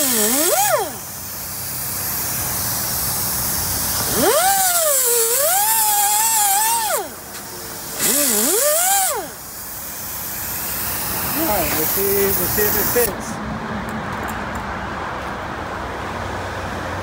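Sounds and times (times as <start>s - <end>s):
cut-off wheel whining on metal: 0.0s - 13.0s
hiss: 0.0s - 13.2s.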